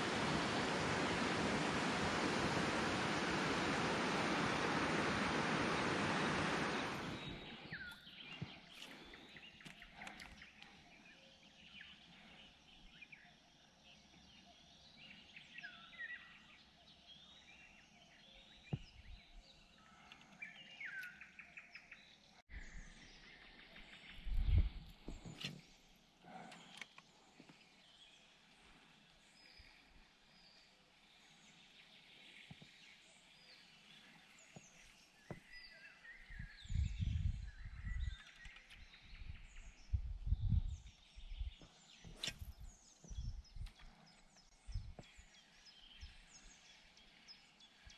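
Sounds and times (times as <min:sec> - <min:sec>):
rushing water: 0:00.0 - 0:07.8.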